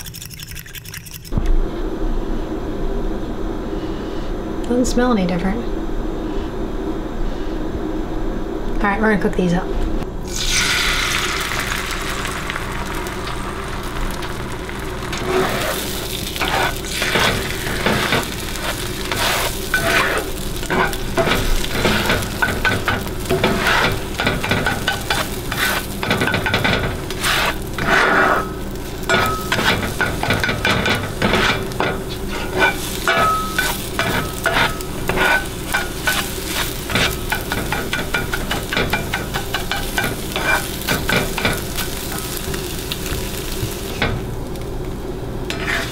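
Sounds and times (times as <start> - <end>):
eggs sizzling in a skillet: 10.3 - 44.7
spatula scraping a pan: 15.1 - 42.4, 45.5 - 45.9.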